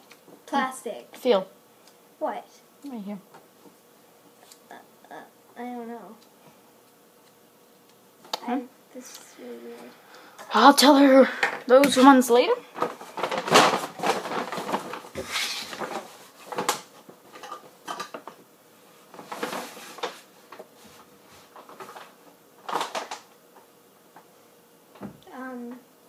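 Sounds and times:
small objects clattering: 12.8 - 18.3.

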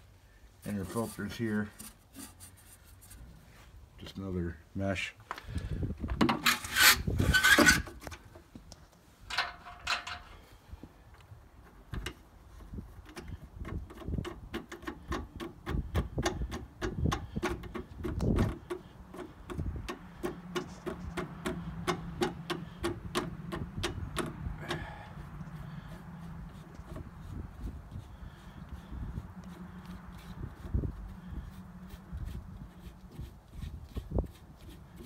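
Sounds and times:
nut clicking as it is tightened: 13.0 - 24.8.

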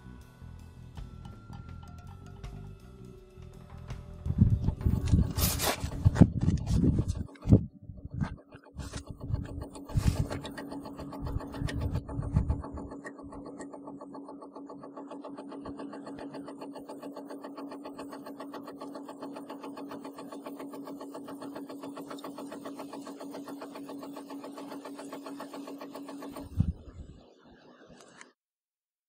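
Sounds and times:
motor hum: 0.0 - 28.2
fast ticking of metering disc: 4.3 - 26.9.

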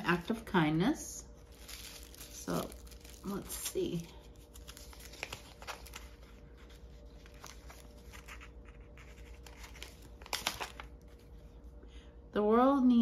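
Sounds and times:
crinkling: 1.3 - 11.6
fabric pouch rustling: 1.4 - 11.1.

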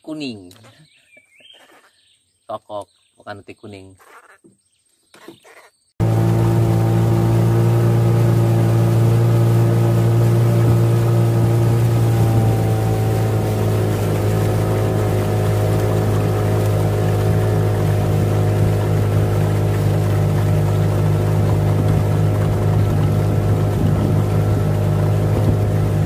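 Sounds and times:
outboard motor running: 6.0 - 26.0.

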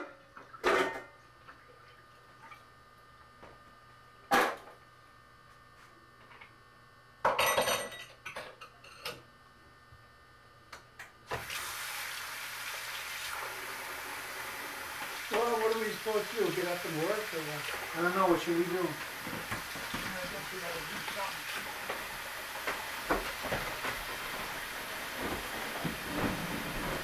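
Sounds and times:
dishes clinking: 7.3 - 9.2
tap water running into sink: 11.3 - 27.0.

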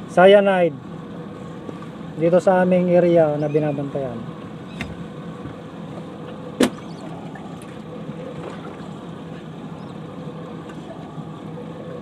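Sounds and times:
motorboat engine hum: 0.0 - 12.0
wind: 0.0 - 12.0
rushing water: 7.0 - 9.8.

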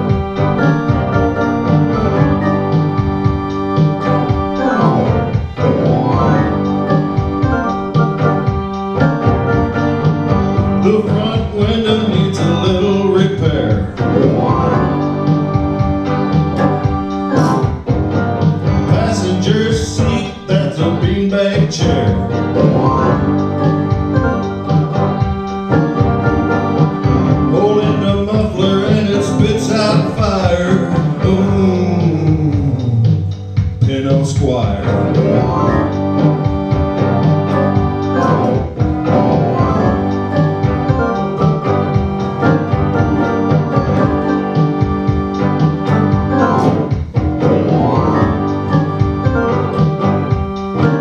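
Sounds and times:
electronic keyboard chords: 0.0 - 51.0
man singing into a microphone: 10.8 - 14.8, 18.9 - 23.0, 27.5 - 35.0.

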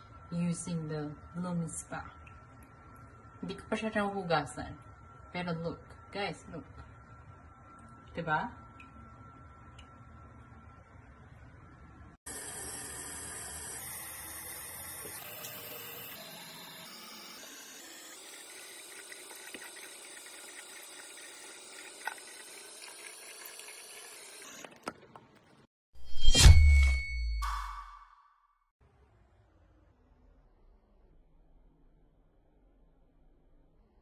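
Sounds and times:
tap water running into sink: 18.2 - 25.2.

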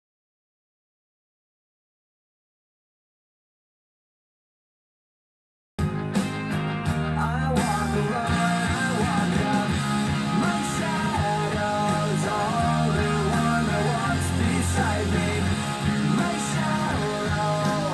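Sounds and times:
rock song through speakers: 5.8 - 17.9.

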